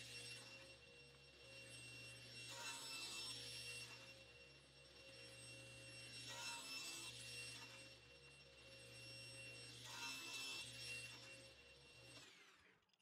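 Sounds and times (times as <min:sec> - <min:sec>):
table saw motor whine: 0:00.0 - 0:13.0
saw blade cutting wood: 0:02.4 - 0:04.1, 0:06.2 - 0:07.8, 0:09.8 - 0:11.4.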